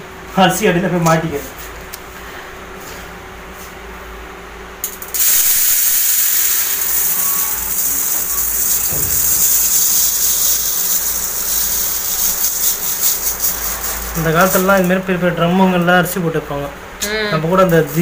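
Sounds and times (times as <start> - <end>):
rice pouring into metal pot: 5.2 - 14.7.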